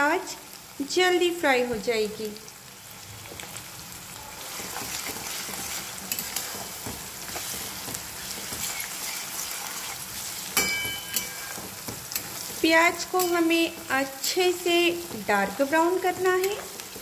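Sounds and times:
onions sizzling in oil: 0.0s - 17.0s
spatula scraping pan: 4.3s - 17.0s.

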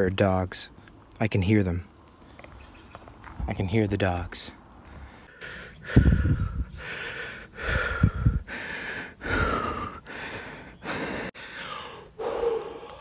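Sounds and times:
person breathing hard: 5.0s - 13.0s
wind thumps on microphone: 5.9s - 6.8s, 7.7s - 8.5s.

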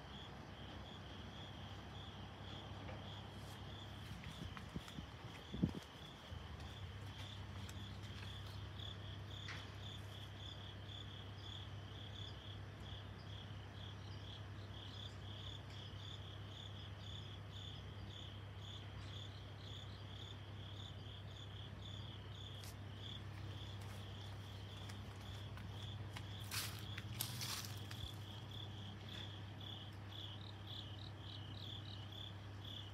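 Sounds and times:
cricket chirping: 0.0s - 32.9s.

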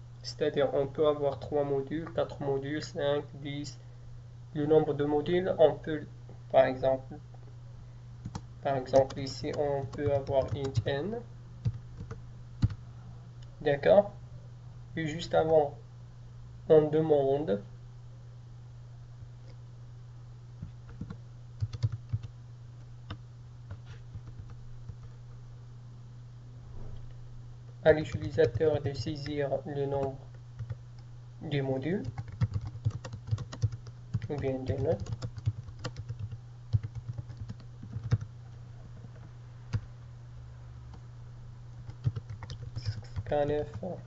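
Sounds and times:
steady low hum: 0.0s - 44.0s
typing on computer keyboard: 8.2s - 10.9s, 11.6s - 12.8s, 20.9s - 22.3s, 23.7s - 25.1s, 32.0s - 38.3s, 41.9s - 43.3s.

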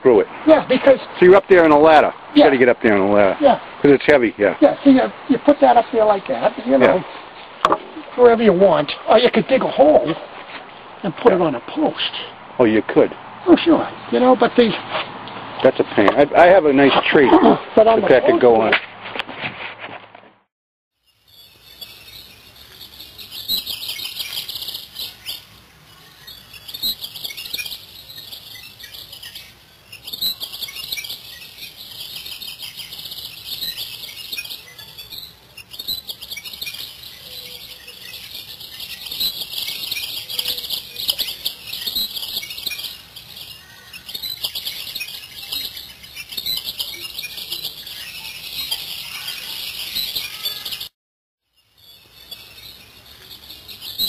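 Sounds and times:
songbirds chirping and singing: 21.2s - 50.9s, 51.6s - 54.0s.

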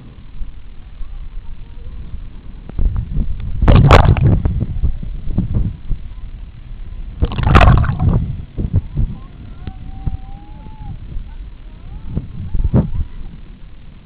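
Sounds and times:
water sloshing over microphone: 3.6s - 4.6s, 7.2s - 8.4s
loud rushes of water: 7.2s - 8.2s.

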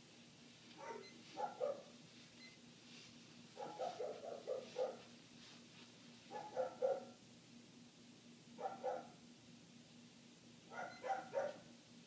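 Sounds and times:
dog barking: 0.8s - 1.9s, 3.6s - 5.1s, 6.3s - 7.2s, 8.6s - 9.2s, 10.7s - 11.7s.

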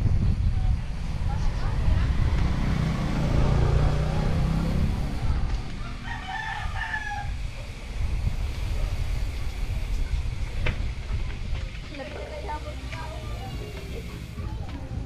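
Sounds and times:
wind rumble: 0.0s - 15.0s
rooster crowing: 5.8s - 7.6s.

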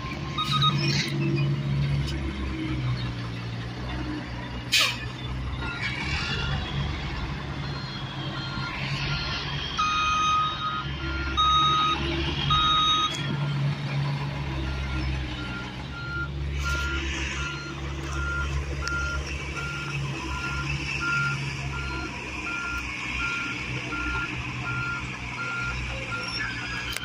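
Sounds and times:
truck diesel engine running: 1.6s - 27.0s
backup alarm beeping: 7.6s - 13.1s.

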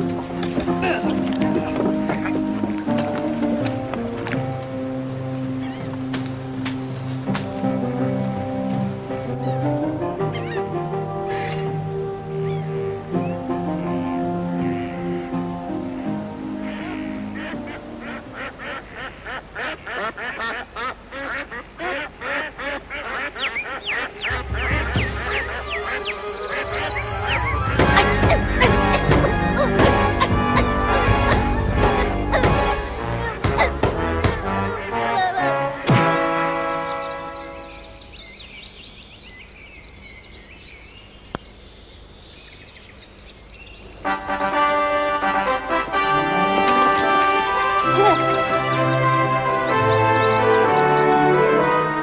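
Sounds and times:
ducks quacking: 0.0s - 3.7s, 5.5s - 6.1s, 9.1s - 38.4s, 43.9s - 52.0s
birds singing and chirping: 0.0s - 7.3s, 9.0s - 44.6s, 46.2s - 51.5s
music: 0.0s - 18.8s, 23.8s - 38.2s, 44.0s - 52.0s
high falling whistled calls: 23.4s - 30.1s.

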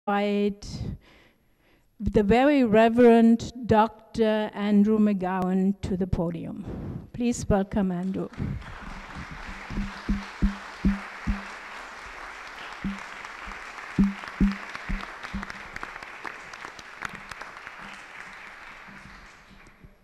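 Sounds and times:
audience applauding: 8.3s - 20.0s
loud low thumps: 9.2s - 11.5s, 14.0s - 15.5s.

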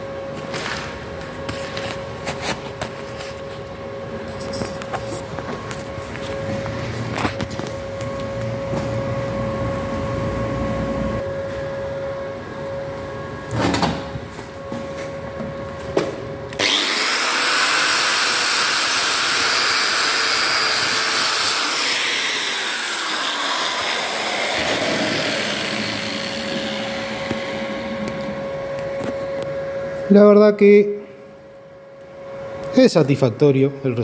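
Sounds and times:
steady hum: 0.0s - 17.0s, 20.9s - 34.0s
angle grinder on steel: 16.6s - 28.0s.

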